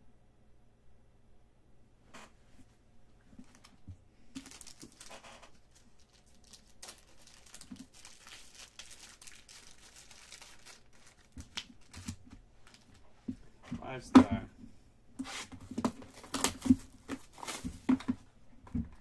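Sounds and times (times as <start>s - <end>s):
plastic packaging crinkling: 3.4s - 13.1s, 15.7s - 18.1s.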